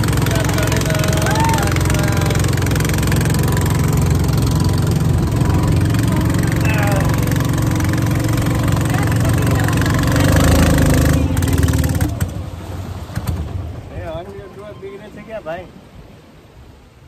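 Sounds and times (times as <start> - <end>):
small boat engine running: 0.0 - 15.1
water rushing past hull: 0.0 - 17.0.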